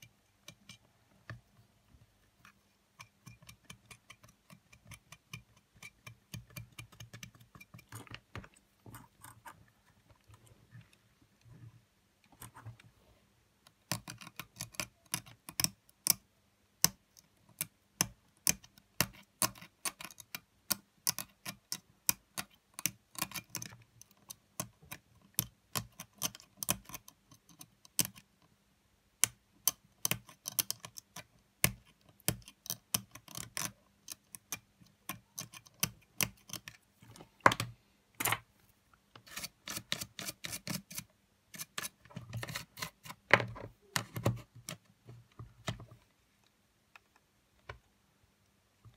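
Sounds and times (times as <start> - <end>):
tweezers clicking and scratching: 2.4 - 9.7, 13.9 - 16.2, 18.4 - 20.4, 22.4 - 28.3, 29.6 - 36.8, 39.2 - 44.8.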